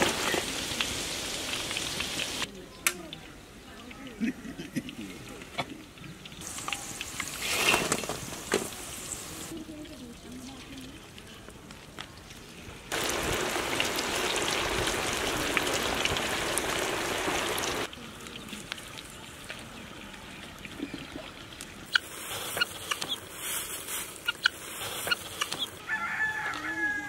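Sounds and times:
chicken deep-frying in oil: 0:00.0 - 0:27.0
guinea fowl calling: 0:24.2 - 0:27.0.

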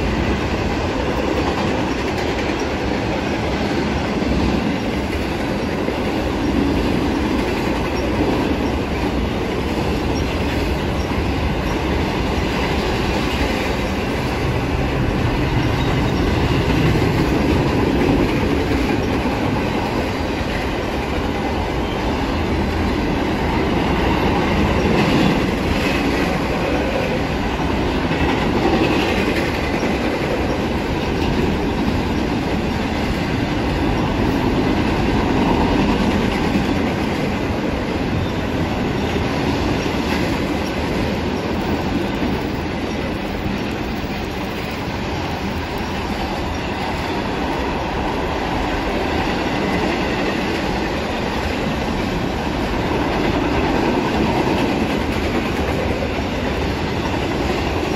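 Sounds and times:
train cars rolling on rails: 0:00.0 - 0:57.9.

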